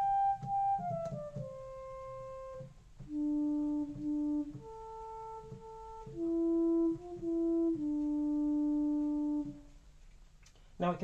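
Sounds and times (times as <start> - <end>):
flute-like synth notes: 0.0 - 9.6.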